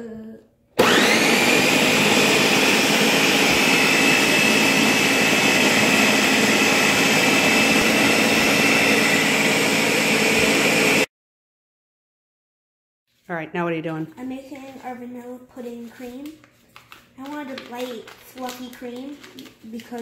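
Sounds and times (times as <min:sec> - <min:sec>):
blender motor whining: 0:00.8 - 0:11.1.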